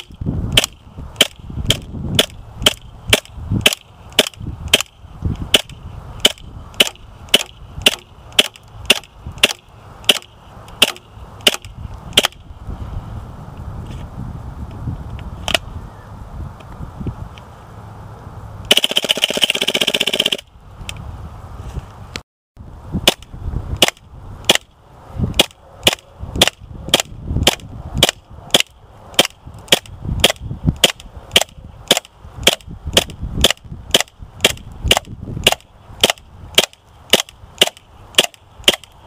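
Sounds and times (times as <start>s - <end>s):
airsoft gun firing: 18.7s - 20.5s.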